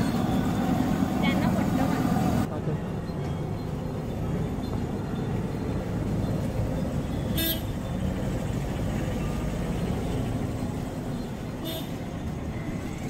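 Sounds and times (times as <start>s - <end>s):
street traffic rumble: 0.0s - 13.0s
vehicle horn toot: 7.3s - 7.9s, 11.6s - 12.0s.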